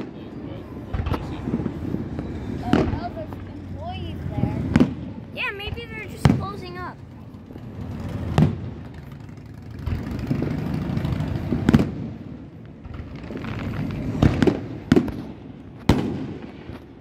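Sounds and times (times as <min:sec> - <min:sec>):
firework shells booming: 0:00.8 - 0:03.3, 0:04.6 - 0:06.8, 0:07.7 - 0:17.0
low rumble and crackle: 0:06.2 - 0:17.0.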